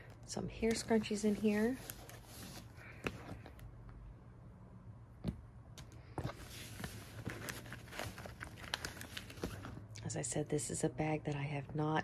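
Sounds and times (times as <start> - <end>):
hands rummaging in handbag: 6.2 - 9.9.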